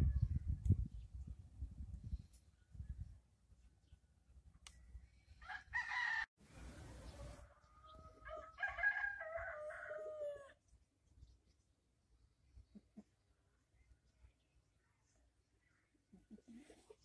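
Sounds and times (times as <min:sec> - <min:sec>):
rooster crowing: 0:05.4 - 0:10.6.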